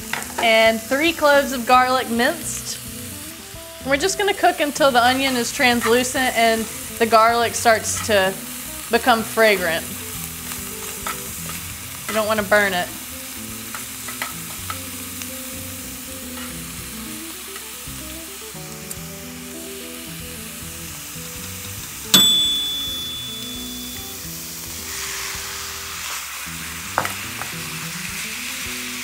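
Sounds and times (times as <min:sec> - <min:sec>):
onion sizzling in frying pan: 0:00.0 - 0:29.0
soft background music: 0:00.0 - 0:29.0
sharp ringing clink: 0:22.2 - 0:24.2.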